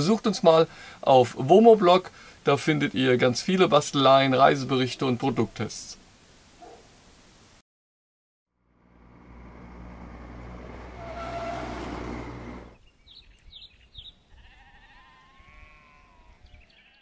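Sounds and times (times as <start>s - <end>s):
vehicle engine noise: 8.5s - 12.8s
wavering bleat: 14.3s - 17.0s.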